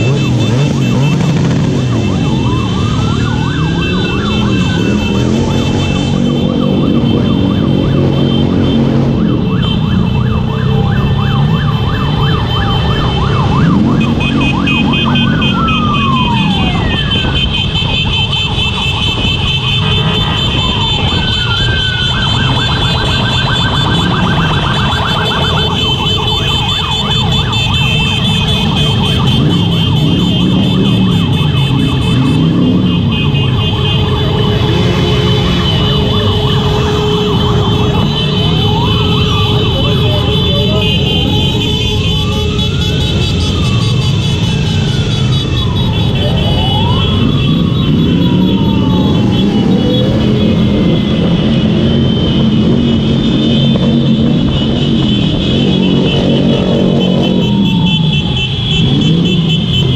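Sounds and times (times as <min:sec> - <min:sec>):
motorcycle engines running: 0:00.0 - 0:59.9
sirens sweeping up and down: 0:00.0 - 0:59.9.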